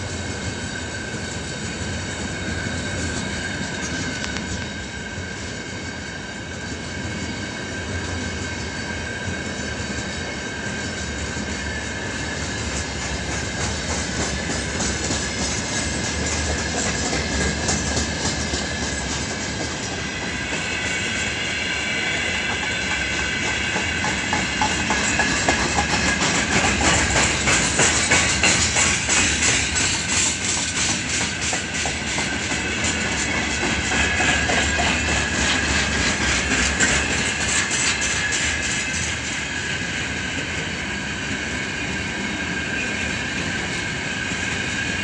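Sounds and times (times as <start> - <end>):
train wheels clattering over joints: 8.4 - 40.8.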